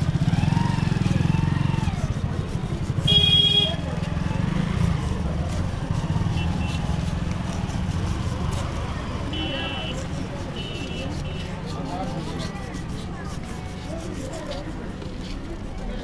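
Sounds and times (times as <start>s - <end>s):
vehicle engine rumbling: 0.0s - 15.8s
horn honk: 3.0s - 3.8s.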